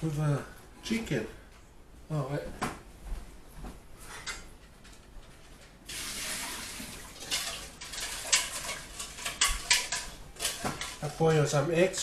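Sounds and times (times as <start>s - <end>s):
tap water running into sink: 5.9s - 8.4s
dishes clicking: 7.2s - 11.0s.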